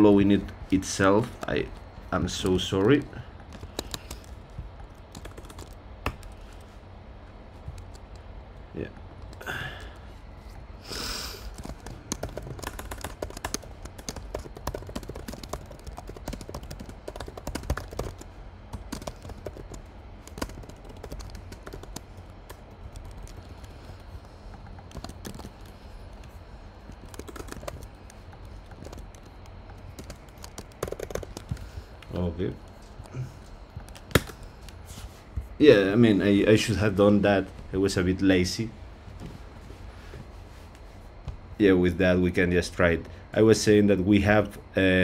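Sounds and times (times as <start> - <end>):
computer keyboard typing: 2.4 - 6.7, 7.6 - 8.3, 11.3 - 34.8.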